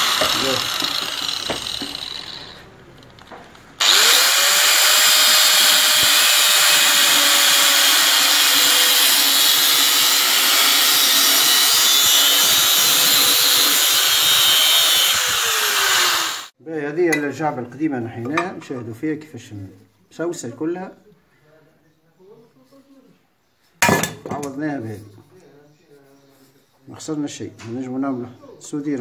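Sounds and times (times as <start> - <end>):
angle grinder cutting steel: 0.0 - 2.7, 3.8 - 16.6.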